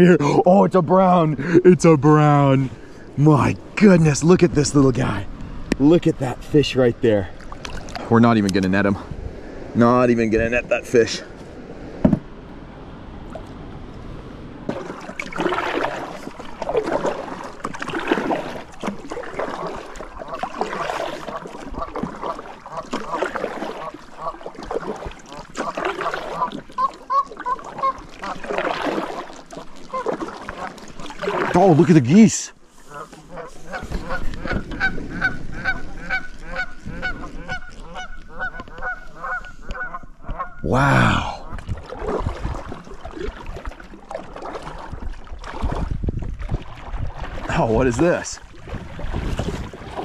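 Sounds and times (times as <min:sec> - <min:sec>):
paddle splashing water: 0:00.0 - 0:50.0
geese honking: 0:25.6 - 0:28.4, 0:32.8 - 0:40.6.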